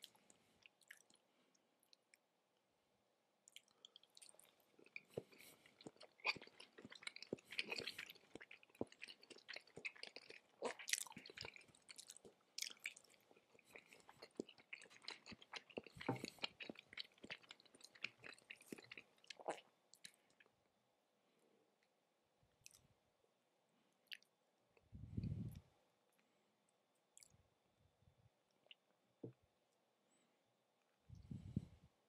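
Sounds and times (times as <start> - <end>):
close chewing noises: 0.0 - 1.2, 3.5 - 20.5.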